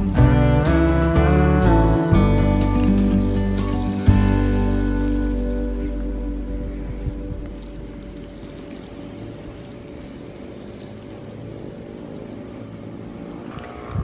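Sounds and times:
water showering from watering can: 2.9 - 13.5.

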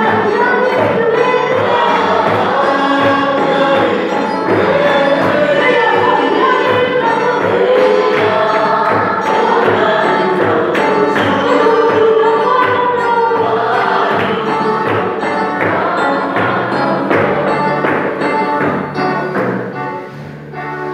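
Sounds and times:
congregation singing a hymn: 0.0 - 20.1.

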